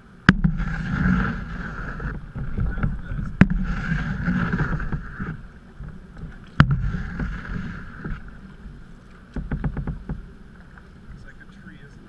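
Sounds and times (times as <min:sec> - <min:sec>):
paddle splashing through water: 0:00.0 - 0:12.0.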